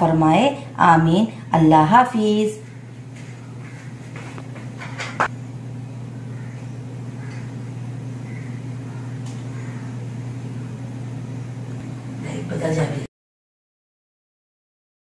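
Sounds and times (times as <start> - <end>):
steady low hum: 0.0 - 13.1.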